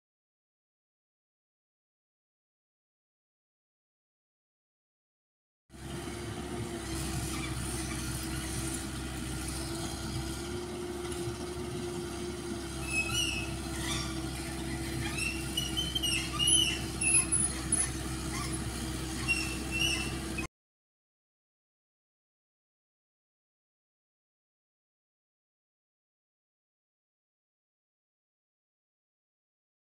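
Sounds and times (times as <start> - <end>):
excavator diesel engine running: 5.8 - 20.5
short high squeaks: 12.7 - 20.5.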